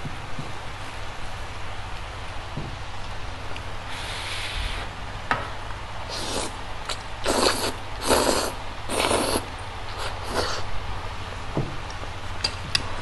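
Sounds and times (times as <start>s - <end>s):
noodles slurping: 6.1s - 10.7s.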